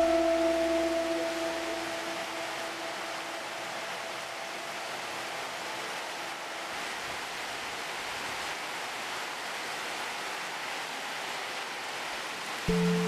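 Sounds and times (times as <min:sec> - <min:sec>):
soft held musical tone: 0:00.0 - 0:05.5, 0:12.7 - 0:13.0
steady hiss: 0:00.0 - 0:13.0.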